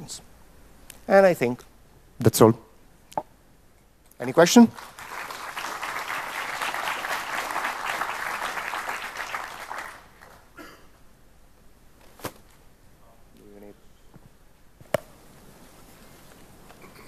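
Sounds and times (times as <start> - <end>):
audience applauding: 4.2 - 10.6.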